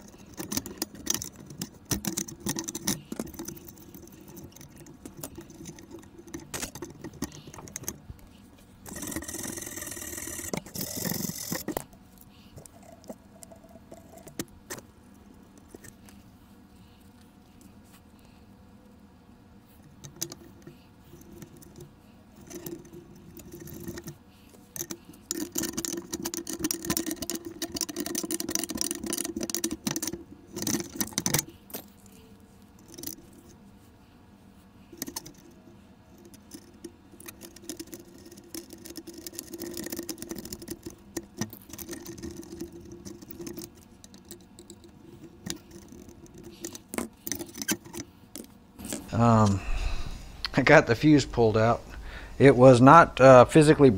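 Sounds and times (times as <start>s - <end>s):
metallic clicks and rattles: 0.0s - 11.9s, 24.8s - 32.0s, 35.0s - 49.1s.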